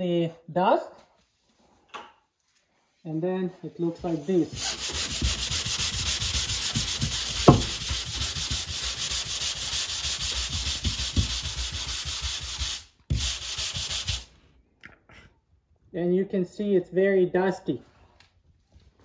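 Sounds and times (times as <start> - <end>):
drywall sanding strokes: 2.5 - 14.4
sharp knock: 7.4 - 7.9.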